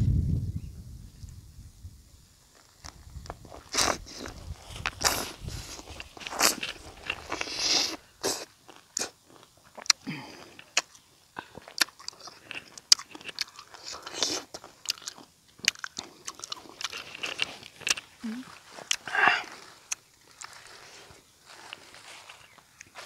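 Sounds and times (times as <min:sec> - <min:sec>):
mouth clicks and smacks: 0:03.7 - 0:18.1, 0:18.8 - 0:20.5
chewing lemon: 0:03.7 - 0:20.9.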